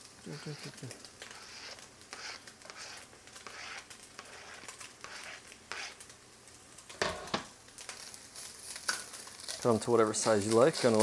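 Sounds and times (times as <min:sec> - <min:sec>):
spatula scraping cutting board: 0:00.3 - 0:06.0.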